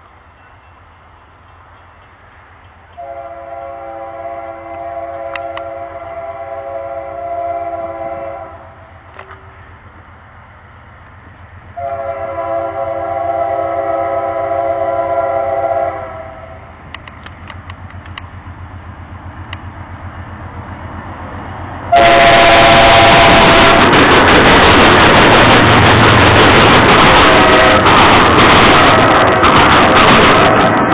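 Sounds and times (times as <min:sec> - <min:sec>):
train rumbling: 0:00.0 - 0:30.9
locomotive air horn blasts: 0:03.0 - 0:09.0, 0:11.8 - 0:16.7, 0:21.9 - 0:24.0, 0:27.2 - 0:27.9.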